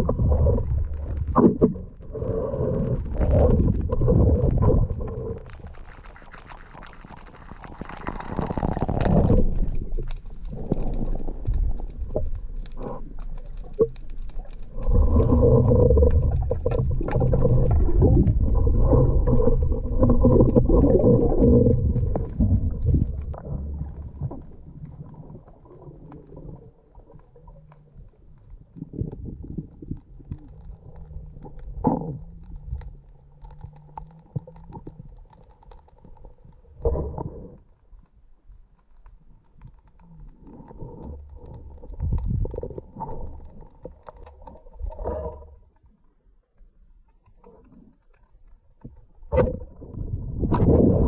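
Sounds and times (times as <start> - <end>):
rushes of water: 0.0 - 46.2, 47.2 - 51.0
small underwater clicks: 0.0 - 51.0
faint ticks: 25.8 - 49.1.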